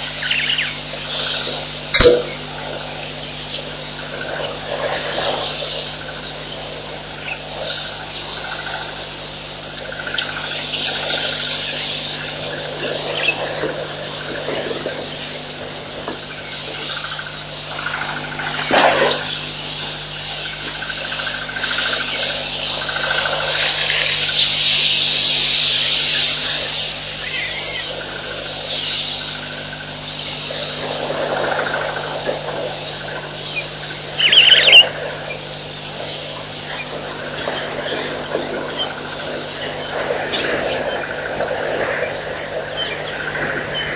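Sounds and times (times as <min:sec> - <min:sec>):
constant low hum: 0:00.0 - 0:43.9
faint trilling calls: 0:00.0 - 0:43.9
insects hissing: 0:00.0 - 0:43.9
loud high-pitched call: 0:34.2 - 0:35.0.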